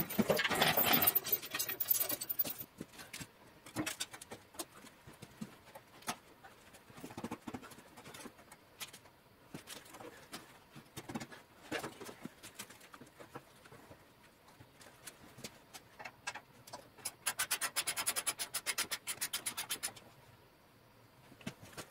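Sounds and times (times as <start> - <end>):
metal parts knocking and clicking: 0.0 - 4.7.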